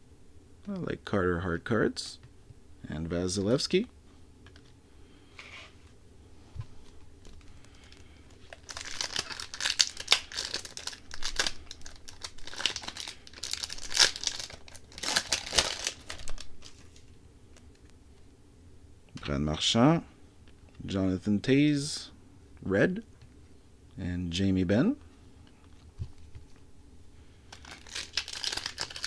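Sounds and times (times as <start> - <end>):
wrapper tearing and crinkling: 7.9 - 17.0, 27.5 - 29.0.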